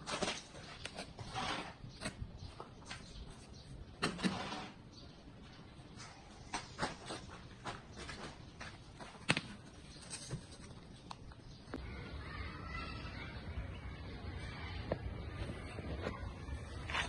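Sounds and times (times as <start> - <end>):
hand scraping soil and rubble: 0.0 - 5.1, 6.0 - 11.3, 16.3 - 17.0.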